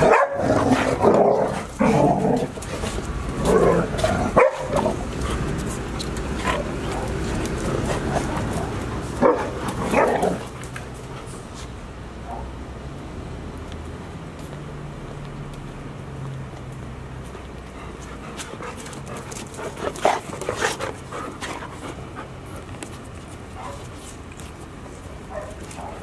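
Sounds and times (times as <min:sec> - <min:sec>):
dogs barking and yipping: 0:00.0 - 0:10.8, 0:23.5 - 0:24.0, 0:25.2 - 0:26.0.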